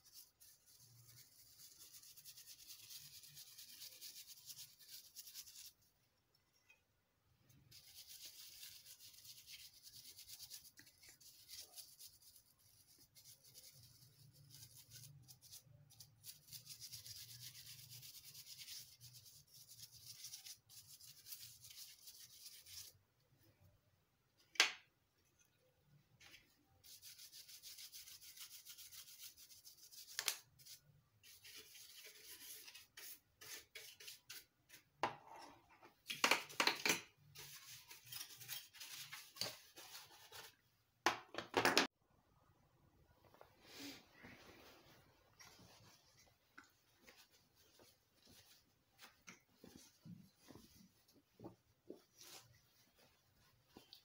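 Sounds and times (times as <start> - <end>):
paintbrush brushing circuit board: 0.0 - 6.0, 7.7 - 23.0, 26.8 - 34.8, 37.3 - 40.6.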